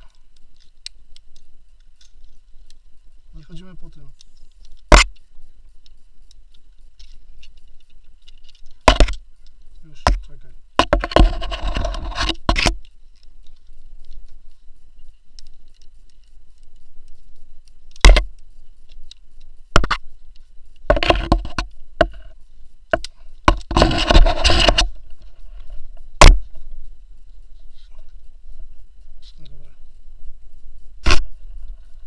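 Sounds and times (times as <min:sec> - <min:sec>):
rope rubbing and rustling: 0:10.8 - 0:17.9, 0:23.5 - 0:29.4.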